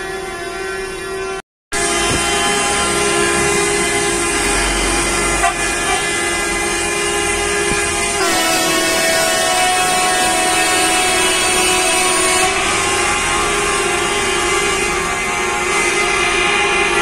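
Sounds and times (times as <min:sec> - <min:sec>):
coach horns blaring: 0:00.0 - 0:17.0
low rumble of engines: 0:00.0 - 0:17.0.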